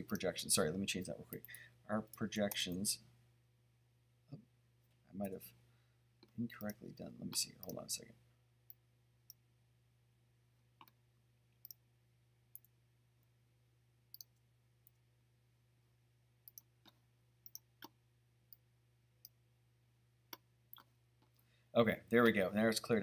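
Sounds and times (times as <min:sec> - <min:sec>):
computer mouse clicks: 0:06.2 - 0:07.8, 0:10.8 - 0:11.0, 0:14.1 - 0:15.0, 0:16.5 - 0:18.6.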